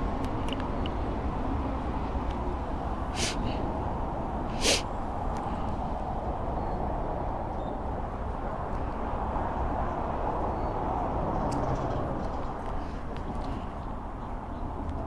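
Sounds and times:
short breathy hisses: 3.2s - 3.6s, 4.5s - 4.8s.

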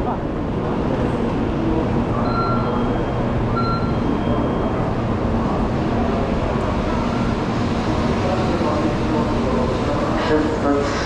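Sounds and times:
train low rumble: 0.0s - 11.0s
short electronic beeps: 2.2s - 4.8s.

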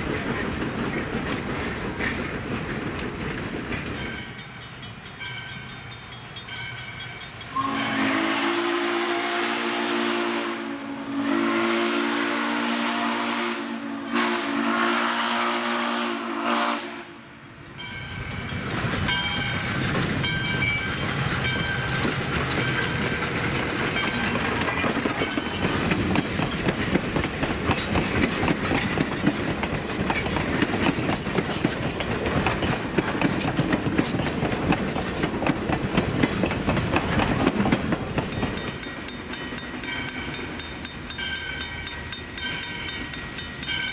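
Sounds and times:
wheels clicking over rail joints: 0.0s - 7.8s, 17.5s - 43.9s
train rumbling past: 0.0s - 43.9s
steam whistle blasts: 7.5s - 17.3s.

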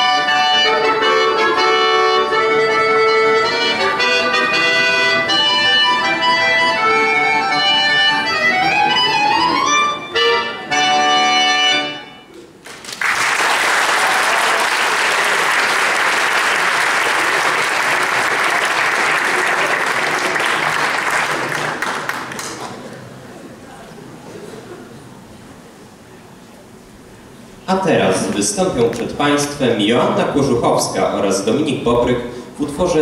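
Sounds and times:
button accordion playing: 0.0s - 12.3s
audience applauding: 12.6s - 22.9s.

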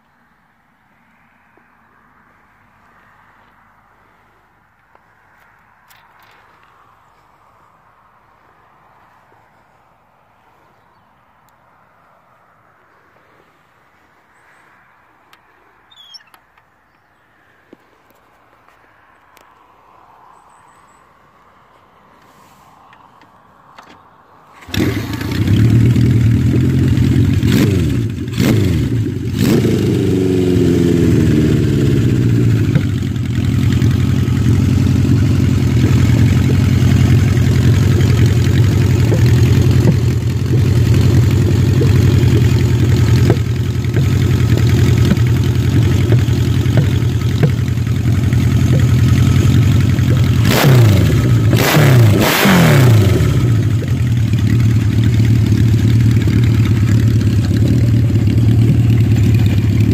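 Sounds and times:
motorcycle engine revving and idling: 24.6s - 59.9s.

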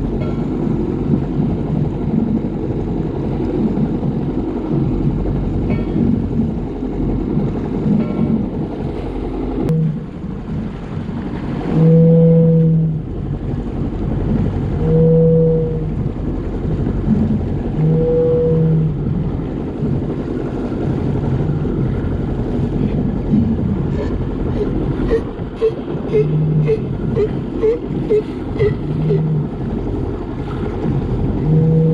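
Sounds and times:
water slapping: 0.0s - 31.9s
foghorn blasts: 9.6s - 10.3s, 11.5s - 13.2s, 14.7s - 16.2s, 17.5s - 19.3s, 24.0s - 29.8s, 30.8s - 31.9s.

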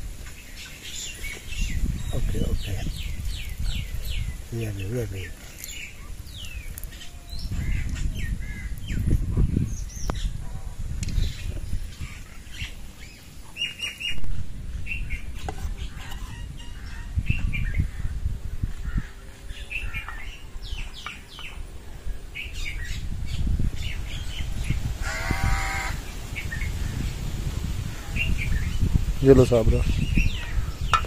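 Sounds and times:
birds chirping: 0.0s - 31.0s
wind rumble on microphone: 0.0s - 31.0s
harsh bird call: 25.0s - 26.7s.

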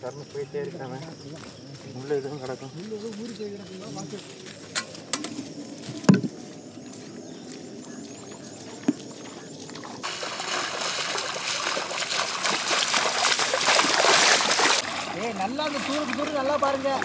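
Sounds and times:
people splashing through water: 0.2s - 17.0s
thump: 6.0s - 6.3s.

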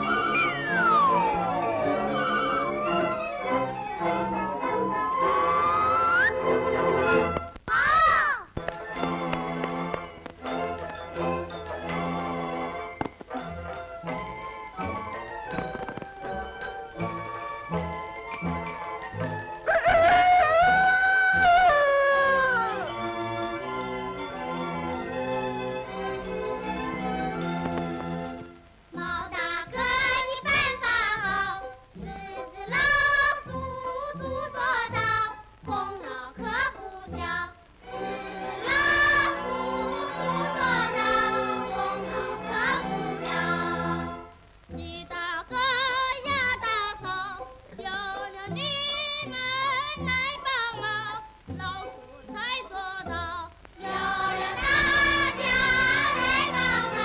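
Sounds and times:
instrumental accompaniment: 0.0s - 7.7s, 8.5s - 57.0s
several voices singing: 29.0s - 44.4s, 52.7s - 57.0s.

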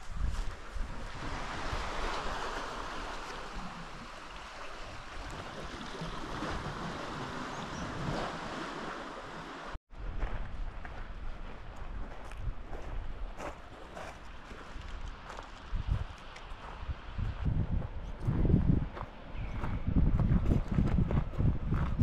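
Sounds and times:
rushing water: 0.8s - 9.8s.

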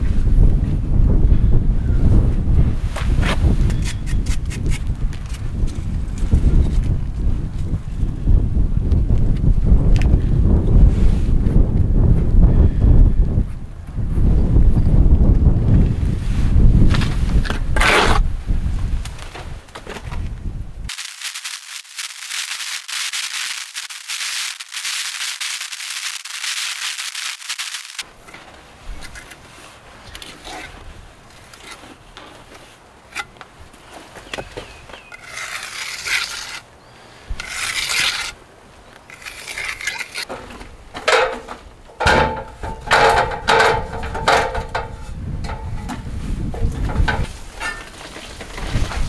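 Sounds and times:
scraping on stone: 35.1s - 36.6s, 37.4s - 38.4s, 39.1s - 40.3s
metal ladder clanking: 40.3s - 46.0s, 46.6s - 48.2s.

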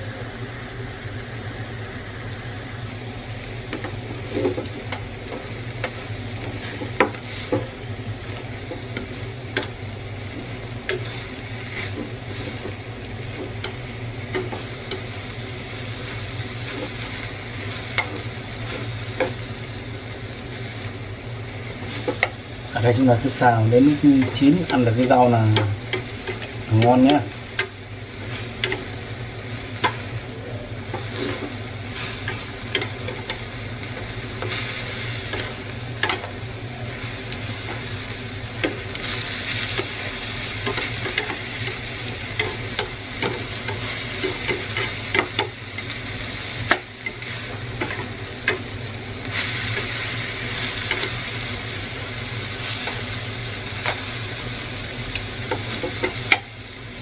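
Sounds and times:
food sizzling in a frying pan: 0.0s - 57.0s
chopsticks scraping a pan: 3.7s - 19.8s, 21.7s - 46.0s, 46.6s - 51.3s.

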